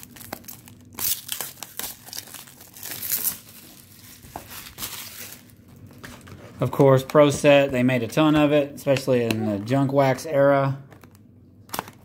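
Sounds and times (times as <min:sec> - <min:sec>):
plastic wrap crinkling and tearing: 0:00.0 - 0:06.7, 0:10.9 - 0:12.0.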